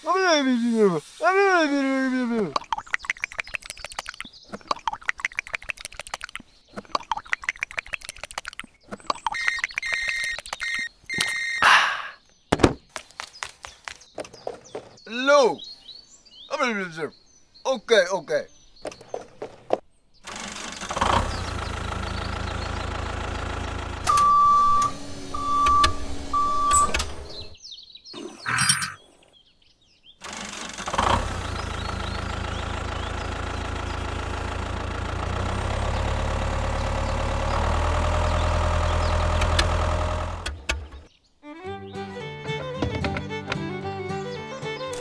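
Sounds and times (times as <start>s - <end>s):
tractor engine running: 2.7s - 11.4s, 20.2s - 27.6s, 30.2s - 41.1s
short beeps: 9.4s - 11.6s.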